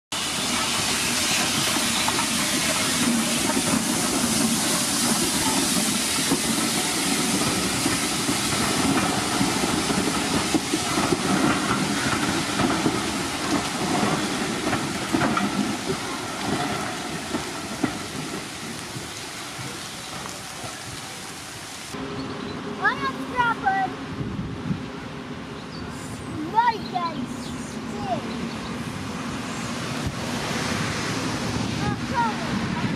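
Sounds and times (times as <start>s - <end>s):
steam hissing: 0.1s - 22.0s
carriages rumbling: 0.1s - 32.9s
wheels clicking on rail joints: 0.2s - 22.0s.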